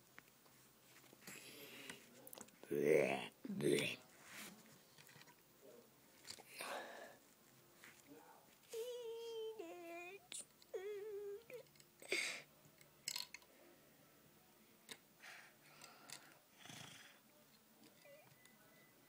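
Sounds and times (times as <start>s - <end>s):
child making wailing play sounds: 8.7s - 11.6s
plastic toy bricks clicking: 13.0s - 13.4s.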